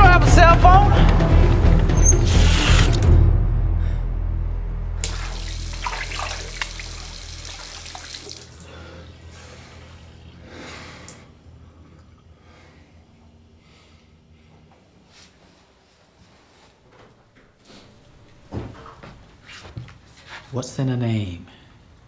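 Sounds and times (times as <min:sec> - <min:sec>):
low steady hum: 0:03.3 - 0:15.2
water running from sink tap: 0:05.0 - 0:08.7.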